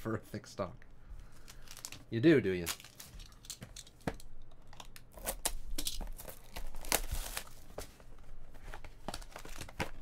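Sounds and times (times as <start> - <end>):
plastic shrink wrap tearing: 5.1 - 7.5.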